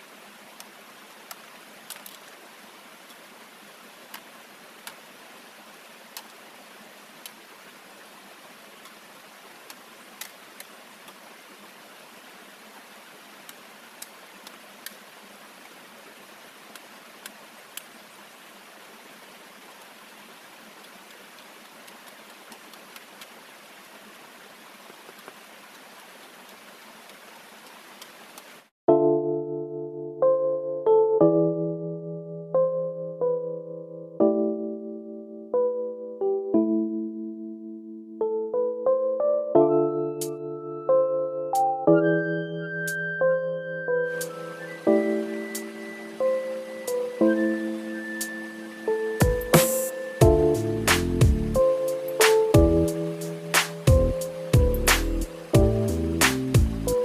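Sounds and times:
waterfall over rocks: 0.0 - 28.7, 44.1 - 57.0.

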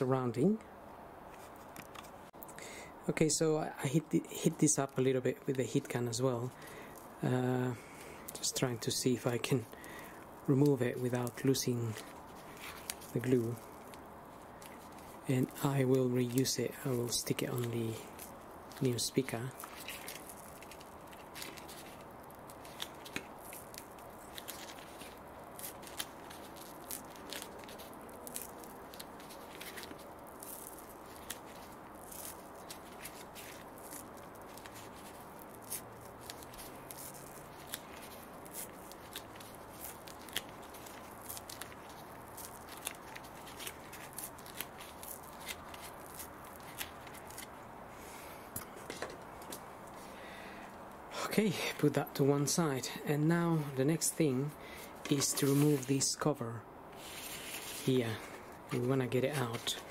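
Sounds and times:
faint steady hiss: 0.0 - 59.9
adhesive strip peeling crackles: 8.0 - 47.7.

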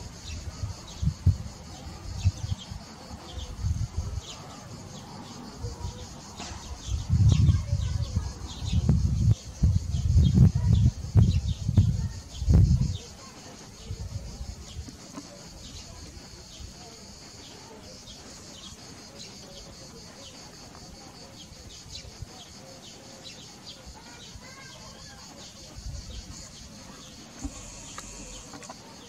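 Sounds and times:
birds chirping: 0.0 - 29.0
chickens clucking: 25.4 - 29.0.

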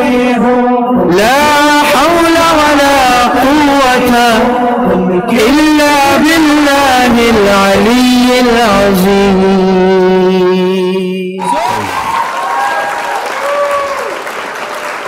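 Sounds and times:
backing music: 0.0 - 10.2
audience applause: 11.4 - 15.0.

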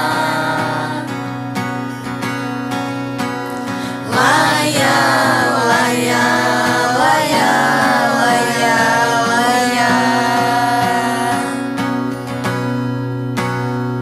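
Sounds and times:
people singing wordless melody: 0.0 - 1.5, 3.6 - 11.9
acoustic guitar: 0.0 - 14.0.

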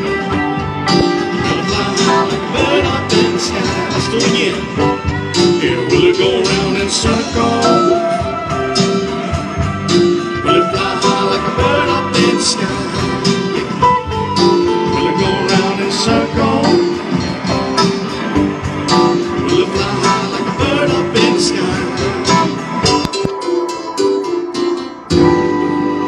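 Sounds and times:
drum kit hits: 0.0 - 23.4
electric and acoustic guitars: 0.0 - 26.0.

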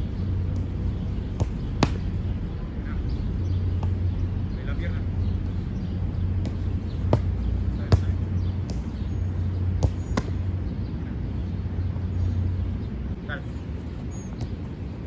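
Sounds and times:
football kick thuds: 0.5 - 2.2, 6.3 - 10.5.

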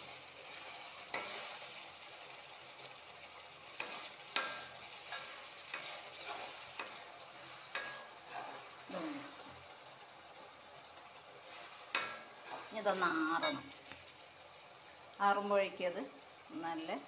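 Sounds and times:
mixture sizzling in pan: 0.0 - 17.0
spoon clicking against pan: 3.8 - 7.0, 7.7 - 8.1, 11.9 - 12.3.

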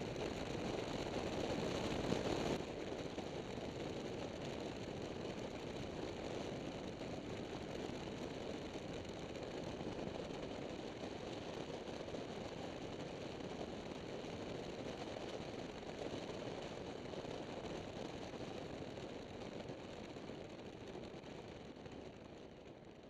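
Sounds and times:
wind and road noise: 0.0 - 18.3.

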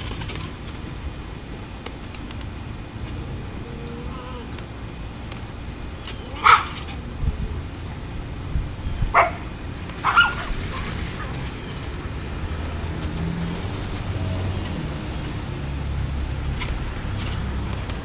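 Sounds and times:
puppies yipping: 6.2 - 7.0, 9.1 - 11.6.

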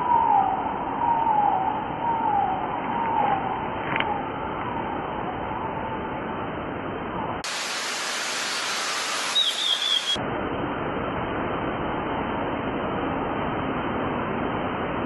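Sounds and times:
bright wide hiss: 7.4 - 10.2
steady hiss: 7.4 - 10.2
short warbling chirp: 9.2 - 10.2.

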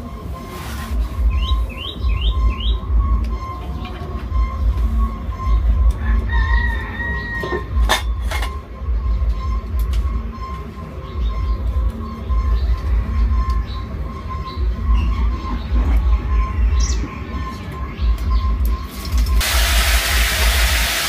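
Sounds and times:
rooster crowing: 6.0 - 7.8.

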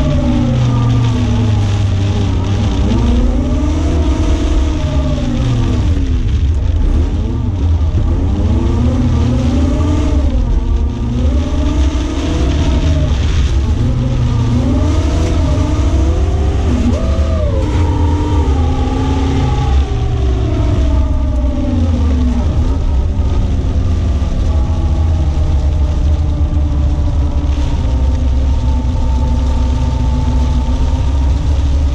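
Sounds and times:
car engine revving: 0.0 - 31.9.

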